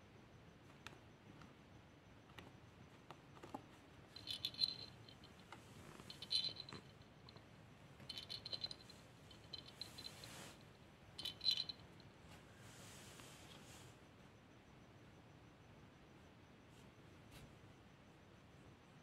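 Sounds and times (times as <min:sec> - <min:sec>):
toy rattle jingling: 0:04.2 - 0:07.0, 0:08.1 - 0:10.5, 0:11.2 - 0:12.0.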